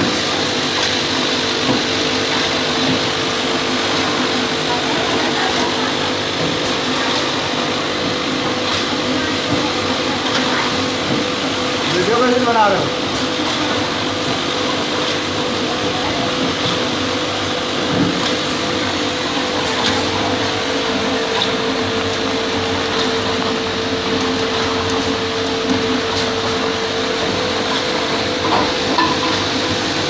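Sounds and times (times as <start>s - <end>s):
packaging machine humming: 0.0s - 30.0s.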